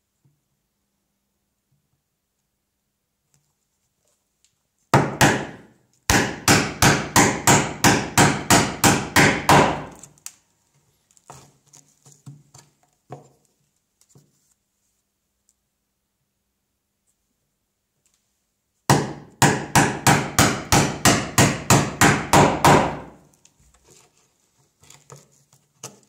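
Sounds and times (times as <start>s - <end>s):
mallet striking chisel: 5.0s - 10.0s, 18.9s - 23.1s.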